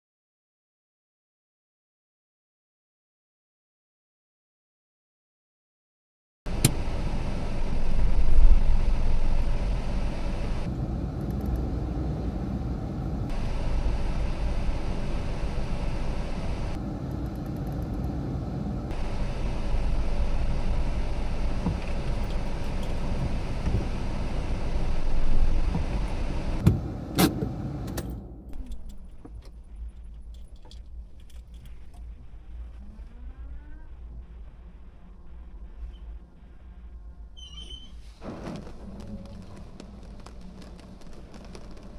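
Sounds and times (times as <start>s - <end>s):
car engine running: 6.5s - 28.1s
road rumble: 6.5s - 37.4s, 38.0s - 41.9s.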